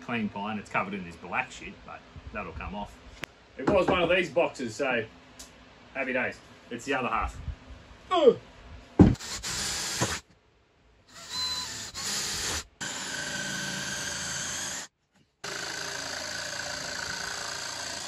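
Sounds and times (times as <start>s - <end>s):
jigsaw cutting wood: 9.2s - 10.2s, 11.2s - 18.0s
belt sander running: 11.2s - 18.0s.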